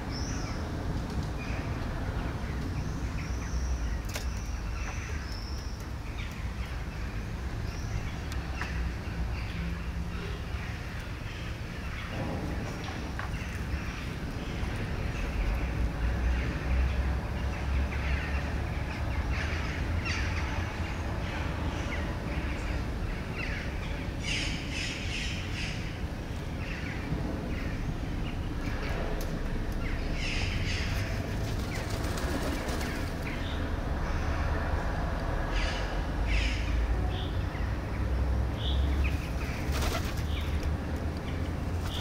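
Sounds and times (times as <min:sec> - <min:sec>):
birds chirping and calling: 0:38.6 - 0:42.0.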